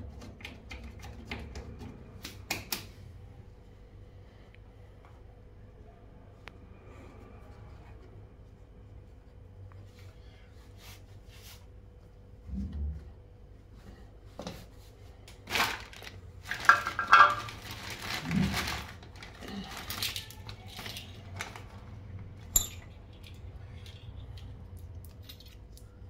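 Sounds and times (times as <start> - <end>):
plastic rustling: 15.3 - 22.0
small metal parts clinking: 22.4 - 25.8.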